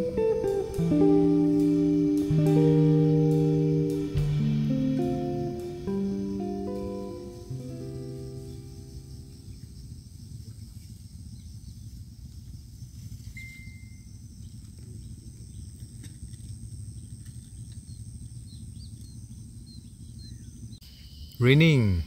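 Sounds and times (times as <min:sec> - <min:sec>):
high-pitched insect drone: 0:00.0 - 0:11.8
faint bird chirps: 0:05.0 - 0:16.0, 0:17.0 - 0:22.0.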